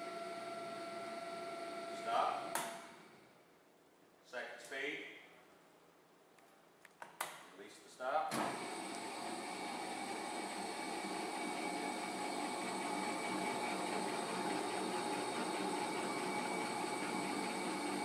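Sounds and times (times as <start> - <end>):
mixer motor humming: 0.0 - 3.2, 8.4 - 18.0.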